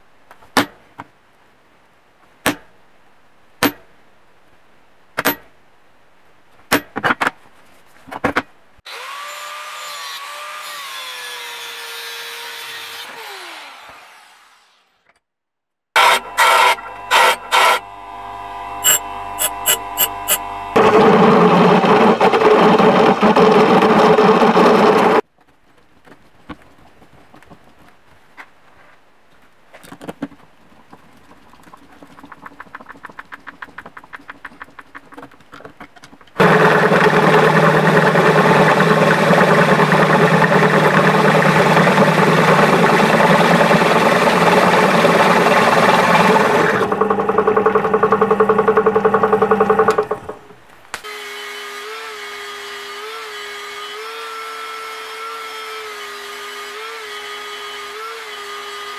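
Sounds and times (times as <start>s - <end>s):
two-stroke engine running: 36.4s - 50.5s.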